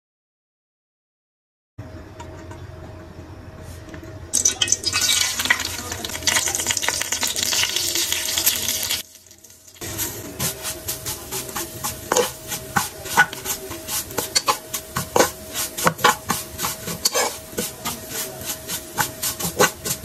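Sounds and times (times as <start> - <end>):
dry noodles pattering on metal pan: 9.7 - 20.0.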